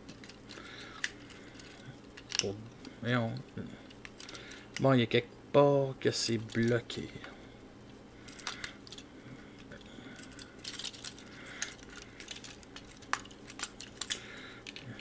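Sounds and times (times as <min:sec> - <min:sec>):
plastic toy parts clicking and rattling: 0:00.0 - 0:02.6, 0:06.3 - 0:07.0, 0:08.3 - 0:15.0.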